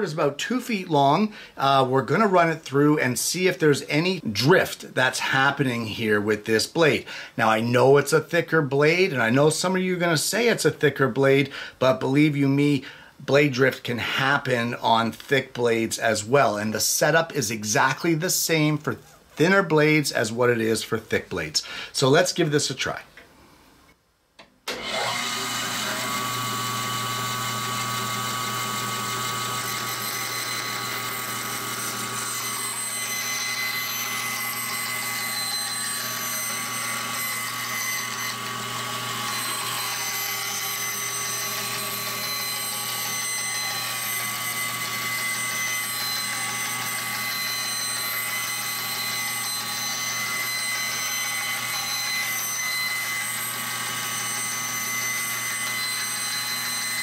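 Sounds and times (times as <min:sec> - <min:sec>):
band saw running: 0:24.7 - 0:57.0
board fed through saw blade: 0:24.7 - 0:57.0.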